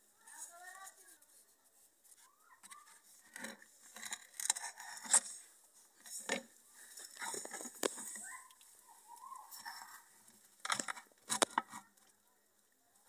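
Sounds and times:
plastic scraping and rubbing: 2.5 - 8.5, 9.2 - 12.0.

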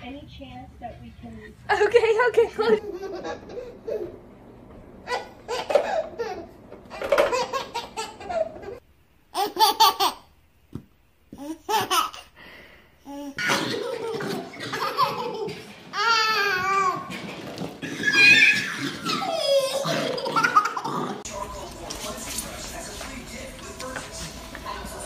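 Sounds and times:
babies laughing: 2.7 - 4.2, 5.0 - 8.8, 9.4 - 10.3, 13.4 - 17.1, 17.8 - 21.3.

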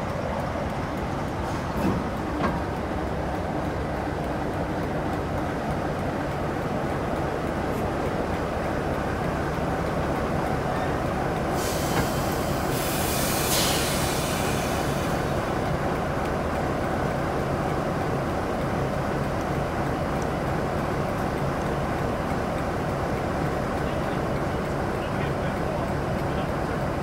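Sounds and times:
diesel locomotive engine idling: 0.0 - 27.0
compressed air hissing: 11.5 - 15.3.

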